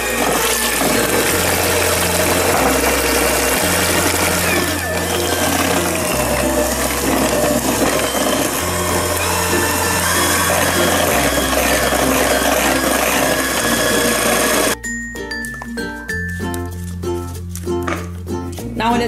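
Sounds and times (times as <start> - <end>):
electric hand mixer running: 0.0 - 14.8
background music: 0.0 - 19.0.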